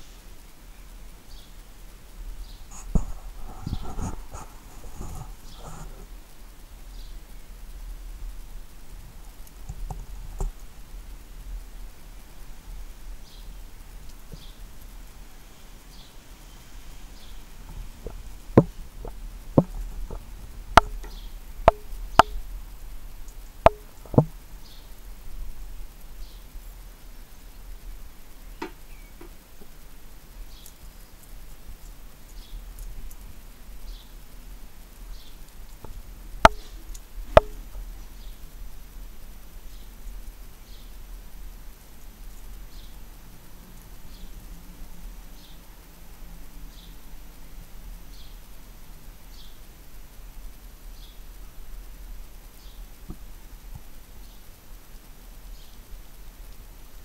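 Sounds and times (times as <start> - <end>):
bird pecking wire feeder: 17.2 - 24.9, 35.1 - 38.4
sharp knocks with ringing tone: 20.8 - 22.4, 23.7 - 24.3, 36.5 - 36.7, 37.4 - 37.6
faint high chirps: 28.2 - 34.3
faint high bird chirps: 28.4 - 29.3.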